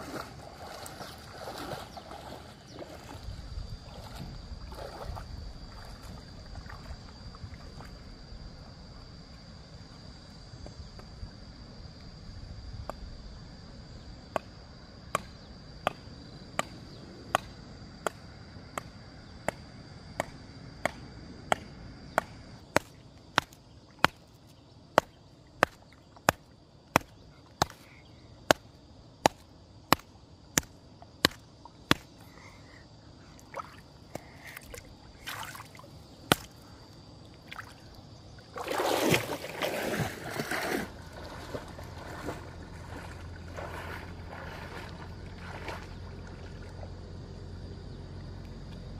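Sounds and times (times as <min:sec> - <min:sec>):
water sloshing and splashing: 0:00.0 - 0:08.2, 0:33.3 - 0:47.1.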